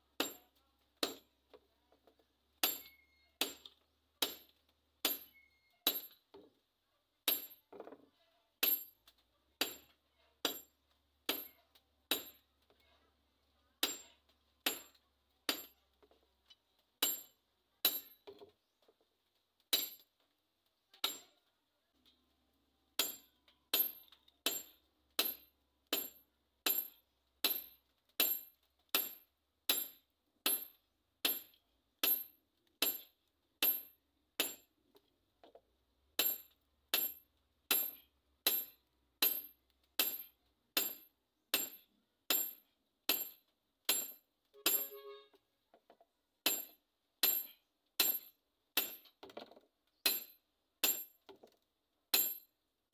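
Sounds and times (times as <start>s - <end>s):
hammer clanging on anvil: 2.6s - 6.2s, 13.8s - 15.7s, 43.9s - 45.2s.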